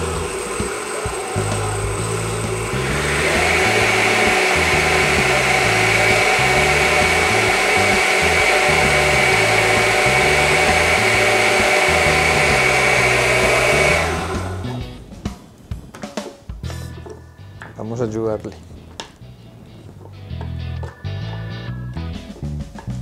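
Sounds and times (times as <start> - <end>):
blender running: 0.0 - 15.0
background music with bass: 0.0 - 23.0.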